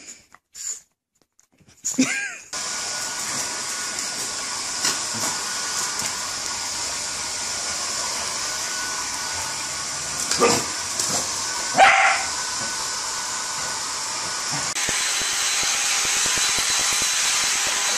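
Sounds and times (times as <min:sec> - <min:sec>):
hair dryer blowing: 0:02.5 - 0:17.9
dog barking: 0:10.4 - 0:10.7, 0:11.7 - 0:12.3.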